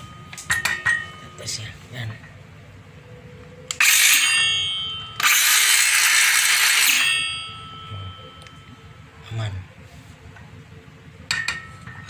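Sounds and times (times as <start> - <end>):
circular saw whining: 3.7 - 8.4.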